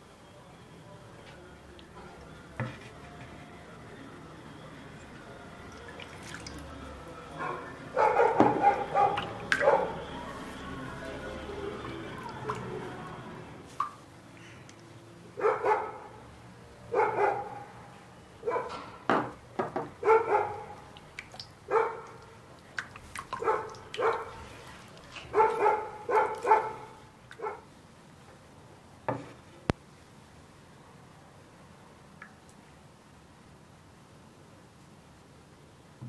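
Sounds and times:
dog barking: 7.4 - 10.0, 15.4 - 16.2, 16.9 - 18.8, 20.0 - 20.8, 21.7 - 22.2, 23.4 - 24.4, 25.3 - 27.7.

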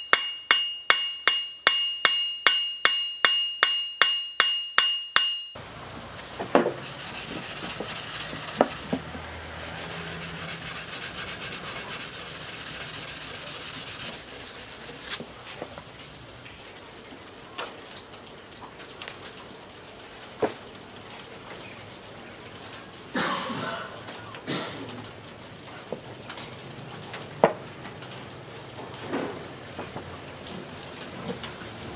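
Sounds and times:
sanding scratching: 6.7 - 15.3.

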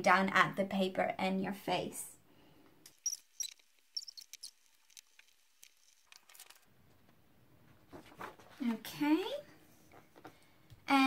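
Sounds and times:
paper sheet rustling: 2.9 - 8.9.

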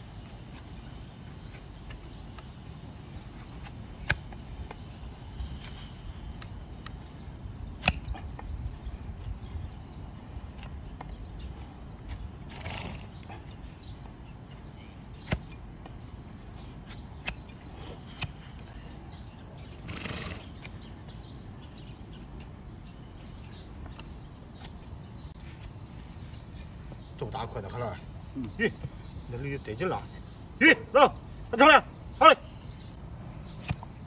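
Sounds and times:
hoof horn shaving: 0.0 - 19.0, 19.7 - 26.8.

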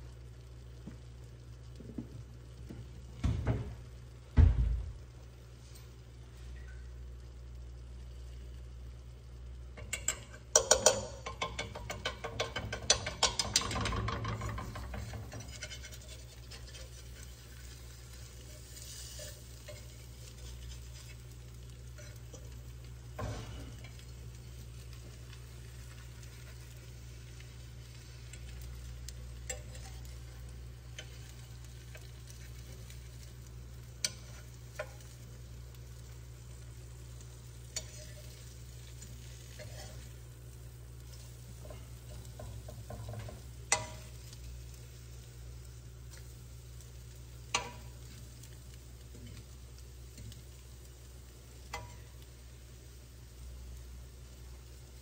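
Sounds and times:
eggs frying: 0.0 - 55.0
metal utensil tapping pan: 9.8 - 17.6, 29.4 - 30.3, 34.0 - 35.2, 37.6 - 40.1, 41.0 - 44.4, 47.5 - 48.2, 51.6 - 52.2
fork scraping a pan: 9.8 - 22.6, 29.4 - 33.0, 34.0 - 35.2, 37.7 - 40.2.

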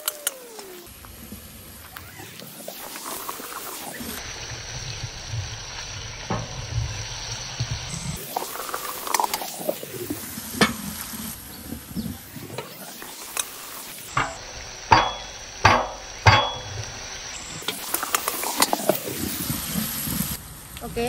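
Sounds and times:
onions sizzling in oil: 0.5 - 21.0
wood knocking on pot: 14.2 - 16.9.

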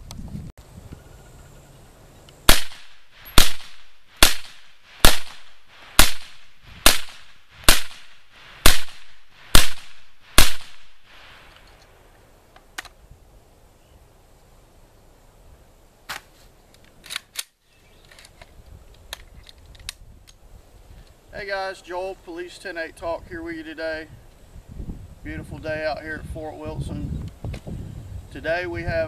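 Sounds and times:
suppressed rifle shots: 2.5 - 11.0.

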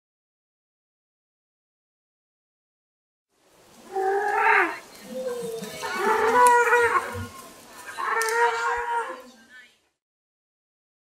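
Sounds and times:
animal calling: 3.8 - 9.4.

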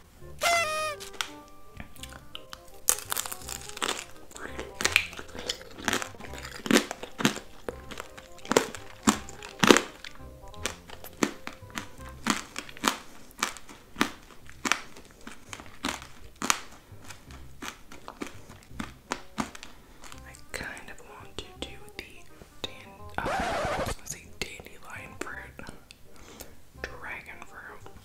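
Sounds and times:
soft background music: 0.0 - 28.0
crunching of candied fruit: 0.4 - 21.2.

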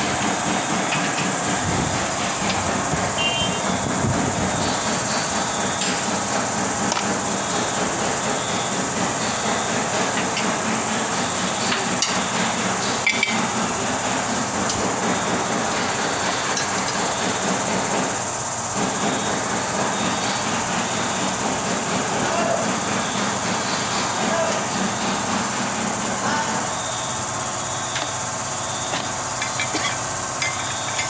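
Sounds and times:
workshop hiss: 0.0 - 31.0
metal tools clinking: 13.0 - 13.4, 29.4 - 31.0.

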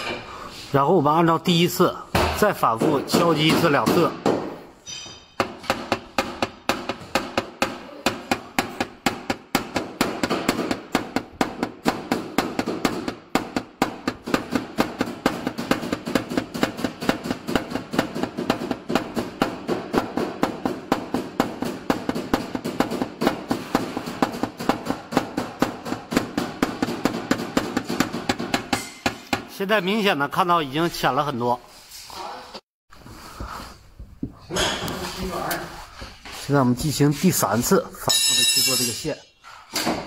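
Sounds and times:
hammer tapping on metal panel: 5.4 - 29.5.

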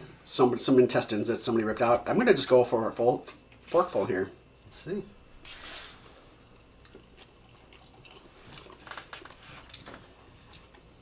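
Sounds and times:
soft chewing: 6.0 - 11.0.

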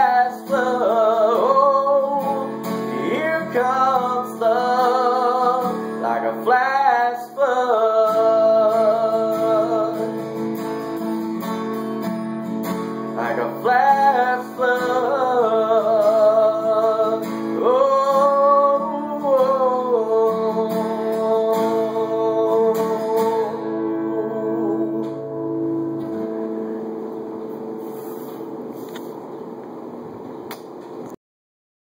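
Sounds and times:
acoustic guitar strumming: 0.0 - 29.6.

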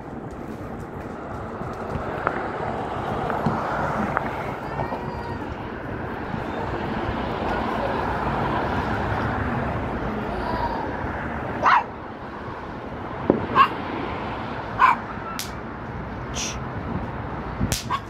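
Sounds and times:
outdoor background hum: 0.0 - 18.0
dog barking: 11.6 - 11.9, 13.5 - 13.8, 14.8 - 15.4.

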